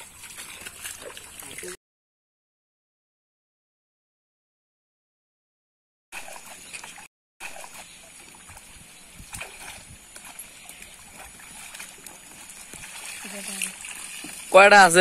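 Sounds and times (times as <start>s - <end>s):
pond water splashing and sloshing: 0.0s - 1.8s, 6.2s - 15.0s.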